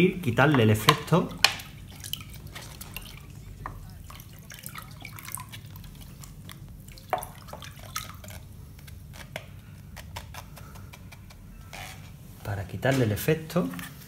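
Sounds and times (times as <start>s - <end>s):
water splashing in bucket: 0.3s - 8.5s
water pouring: 0.6s - 8.6s.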